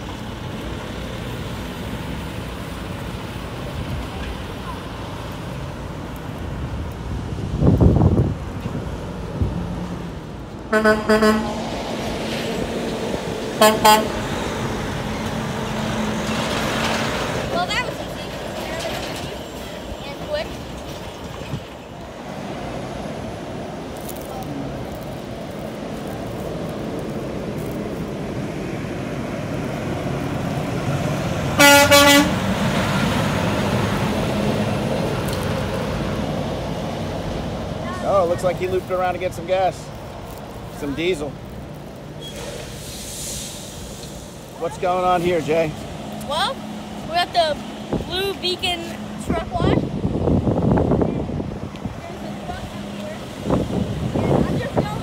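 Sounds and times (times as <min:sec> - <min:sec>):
truck driving past: 0:00.0 - 0:55.0
truck horn toots: 0:10.7 - 0:11.7, 0:13.6 - 0:14.2, 0:31.6 - 0:32.5.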